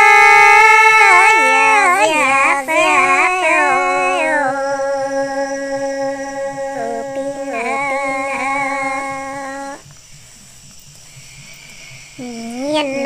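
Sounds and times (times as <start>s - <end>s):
woman singing unaccompanied: 0.0s - 9.8s.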